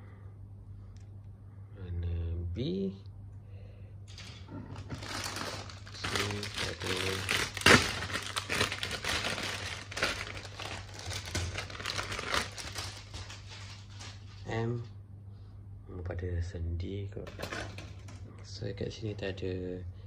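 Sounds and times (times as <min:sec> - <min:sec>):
plastic bag crinkling: 0:04.7 - 0:14.5.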